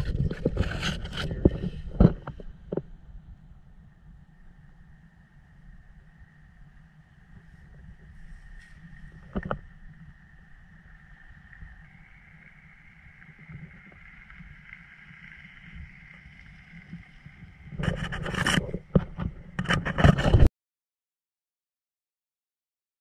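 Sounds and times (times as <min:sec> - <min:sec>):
microphone handling noise: 0:00.0 - 0:02.9, 0:07.6 - 0:09.7, 0:17.7 - 0:20.5
faint steady high drone: 0:02.8 - 0:17.8.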